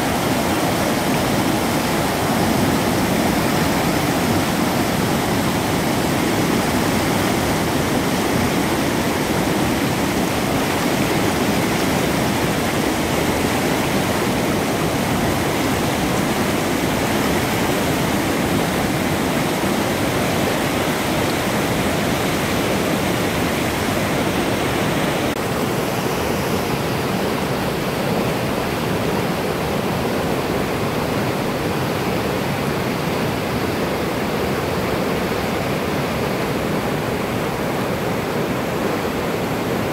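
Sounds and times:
river rushing over rocks: 0.0 - 39.9.

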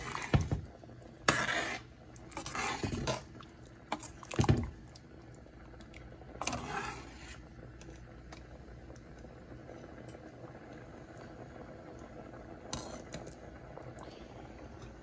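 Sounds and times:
ladle sloshing and scraping pot: 0.0 - 5.0, 5.9 - 8.0, 12.7 - 13.4.

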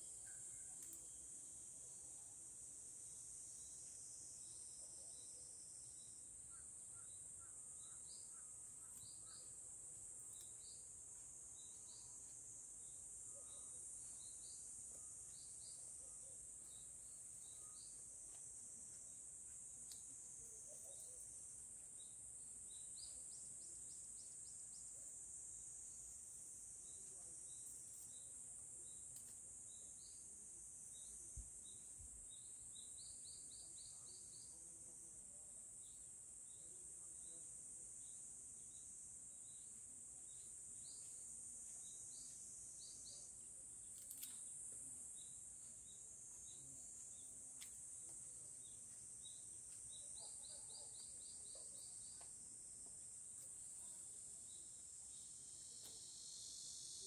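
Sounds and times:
high-pitched insect drone: 53.6 - 57.0.

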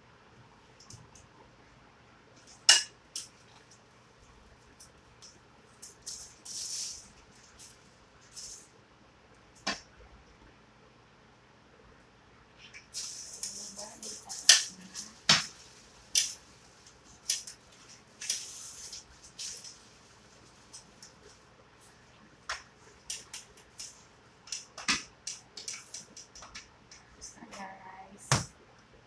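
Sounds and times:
crinkly rustling: 13.0 - 24.2.

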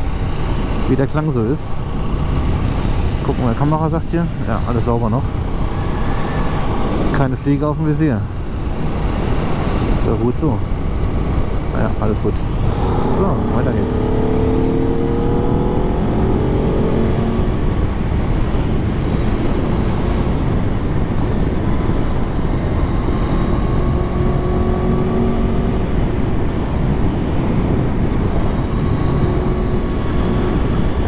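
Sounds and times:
wind rush on microphone: 0.0 - 31.0
motorcycle engine revving: 12.4 - 18.1, 21.6 - 26.2.

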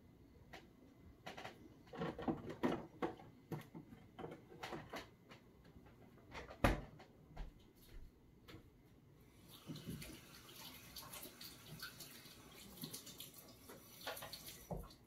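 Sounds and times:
light irregular clicks and knocks: 0.4 - 8.7.

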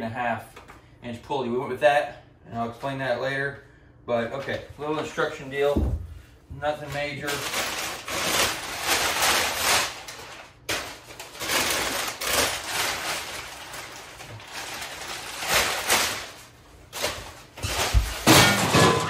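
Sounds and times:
packing material rustling: 6.7 - 18.4.

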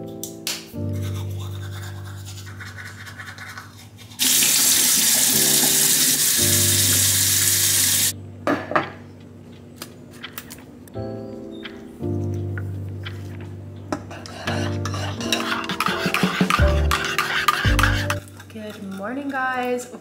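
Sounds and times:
background music: 0.0 - 2.9, 4.8 - 8.4, 10.7 - 18.4
tap water running into sink: 4.2 - 8.1.

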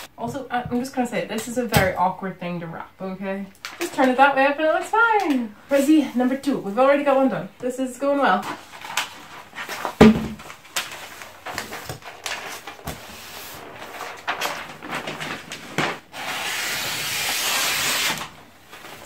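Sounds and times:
wrapping paper rustling: 8.4 - 16.4
thump: 10.0 - 10.4.

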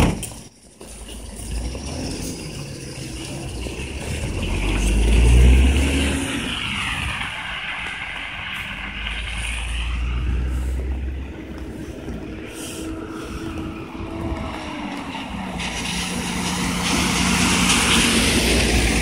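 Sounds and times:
minibus engine rumble: 0.0 - 19.0
tyre hiss on wet asphalt: 5.0 - 19.0.

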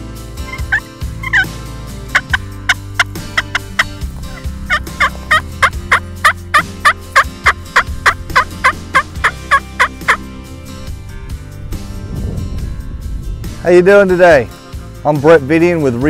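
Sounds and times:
turkey call yelps: 0.5 - 1.5, 2.1 - 3.9, 4.7 - 10.2.

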